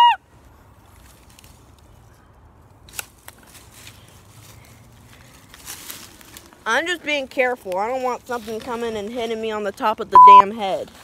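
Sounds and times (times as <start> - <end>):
twigs cracking: 0.4 - 9.8
leaves crunching underfoot: 0.7 - 2.2, 2.8 - 9.7.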